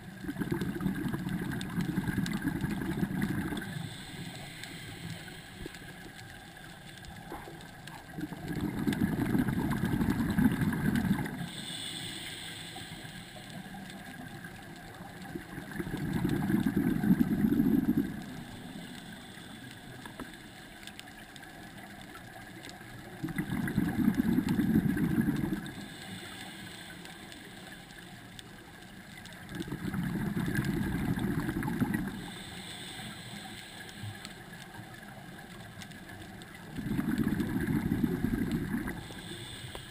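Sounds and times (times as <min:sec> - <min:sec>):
bubbling exhalation underwater: 0:00.2 - 0:03.7, 0:08.1 - 0:11.4, 0:15.6 - 0:18.2, 0:23.2 - 0:25.6, 0:29.6 - 0:32.2, 0:36.7 - 0:39.0
regulator inhalation hiss: 0:02.0 - 0:07.3, 0:11.2 - 0:15.8, 0:16.9 - 0:20.9, 0:25.5 - 0:28.6, 0:32.0 - 0:34.9, 0:38.8 - 0:39.9.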